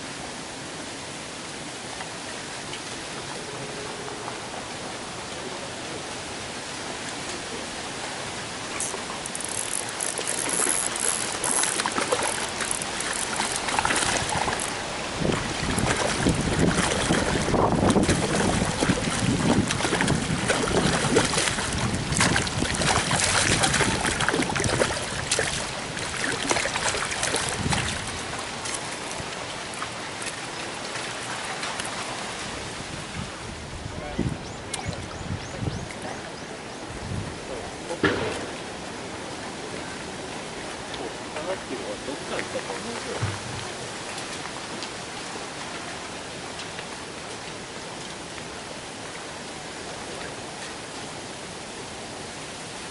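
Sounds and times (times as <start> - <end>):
fish splashing at water surface: 8.8 - 29.2.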